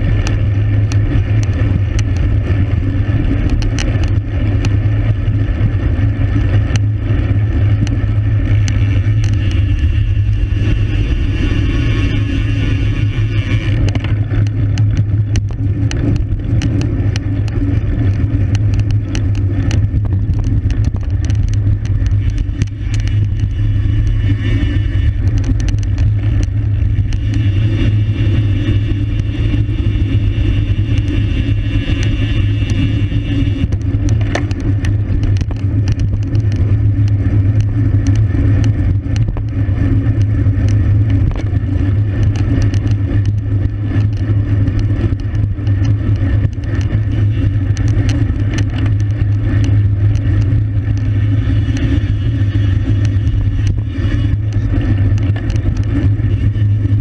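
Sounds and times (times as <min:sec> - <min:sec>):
low wind rumble on microphone: 0:00.0 - 0:57.0
road and tyre noise: 0:00.0 - 0:57.0
small clicks: 0:00.0 - 0:57.0.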